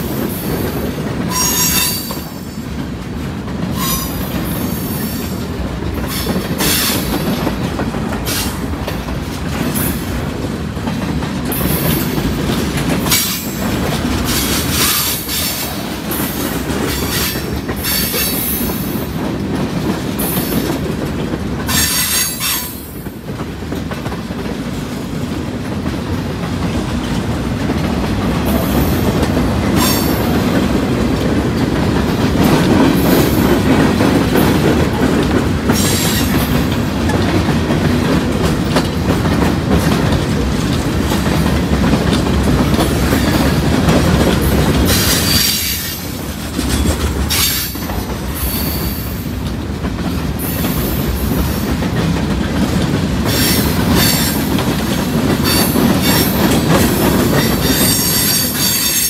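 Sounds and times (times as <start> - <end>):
train wheels rumbling on rail: 0.0 - 59.0
high wheel squeals: 1.3 - 2.3, 57.4 - 59.0.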